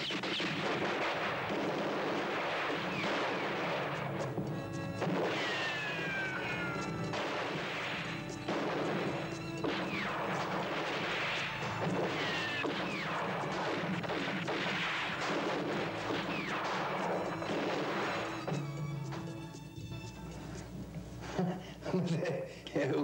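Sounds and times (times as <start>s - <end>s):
rifle gunfire: 0.0s - 18.6s
dramatic music: 2.3s - 20.6s
crashes: 5.0s - 18.5s
falling whistle-like tones: 5.3s - 7.0s.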